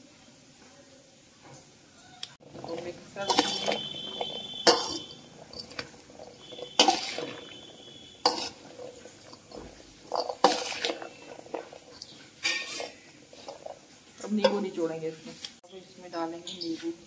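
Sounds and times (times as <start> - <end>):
metal bowl ringing: 2.4 - 11.8
spoon scraping and clanking bowl: 2.4 - 14.8.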